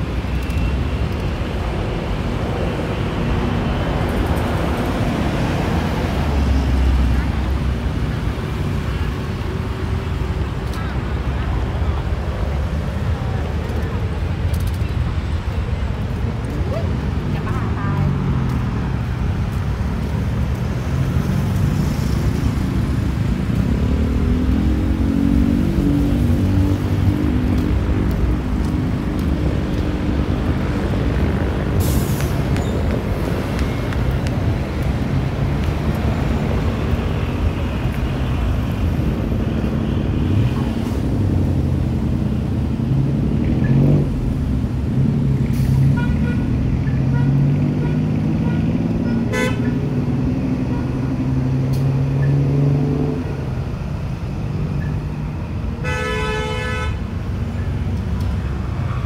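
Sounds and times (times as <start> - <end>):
vehicle engines passing: 0.0 - 59.0
long horn blast: 55.8 - 57.0.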